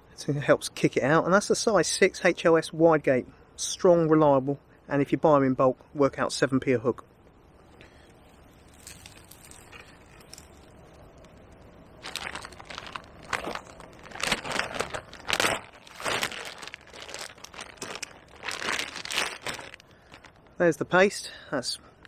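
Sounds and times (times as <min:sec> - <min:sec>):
plastic bag crinkling: 0:08.2 - 0:20.6.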